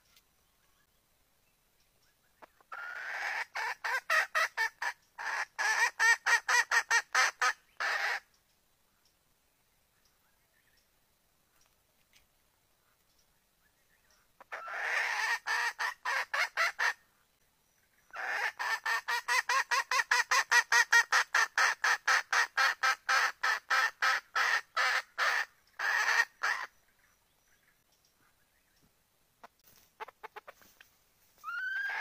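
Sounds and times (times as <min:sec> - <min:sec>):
junglefowl hen calling: 0:02.4 - 0:08.3, 0:14.4 - 0:17.1, 0:18.0 - 0:28.4, 0:29.4 - 0:32.0.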